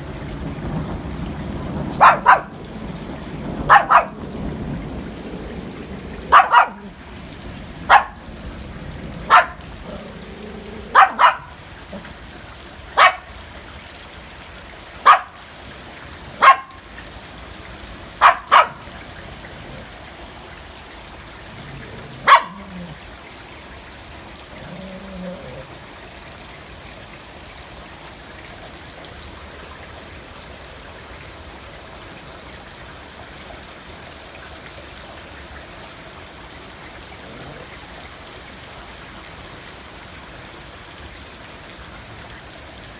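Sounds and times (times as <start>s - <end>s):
rain on water and concrete: 0.0s - 42.9s
small dog barking: 1.9s - 2.6s, 3.6s - 4.2s, 6.2s - 7.0s, 7.9s - 8.2s, 9.2s - 10.1s, 10.8s - 12.1s, 13.0s - 13.3s, 15.0s - 15.4s, 16.4s - 16.8s, 18.2s - 18.9s, 22.1s - 23.0s.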